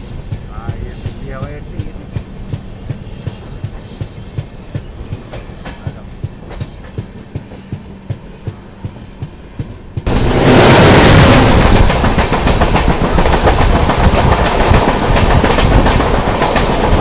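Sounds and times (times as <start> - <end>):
wheels clicking over rail joints: 0.0 - 10.2
rushing wind and rail noise: 0.0 - 17.0
train low rumble: 0.0 - 17.0.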